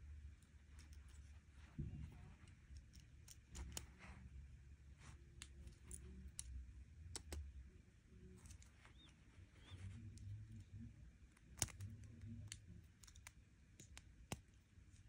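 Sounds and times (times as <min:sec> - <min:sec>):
faint low rumble: 0:00.0 - 0:15.0
plastic pieces clicking together: 0:11.3 - 0:14.6.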